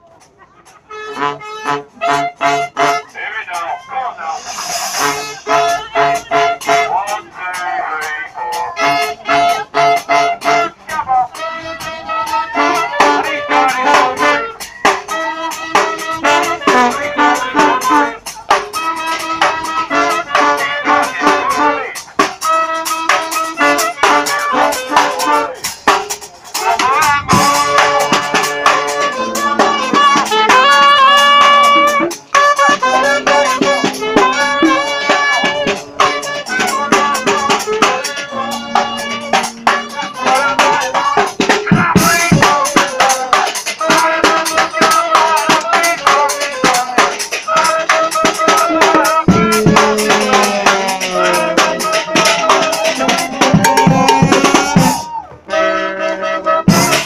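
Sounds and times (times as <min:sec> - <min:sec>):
brass band horns playing: 0:00.6 - 0:57.0
snare and cymbal hits: 0:04.4 - 0:06.4
drum kit beat: 0:04.4 - 0:55.2, 0:56.7 - 0:57.0
sharp percussion hits: 0:12.4 - 0:55.2.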